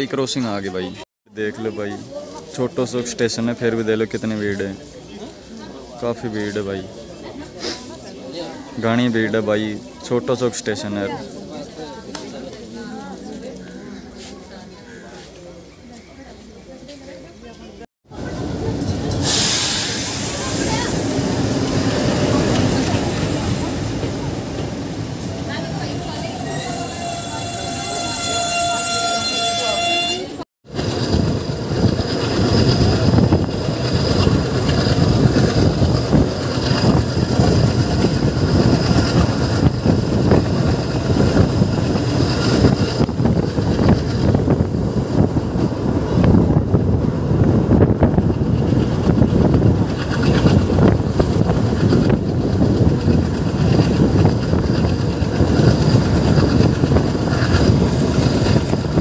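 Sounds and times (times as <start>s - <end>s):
train wheels rumbling on rails: 18.1s - 59.0s.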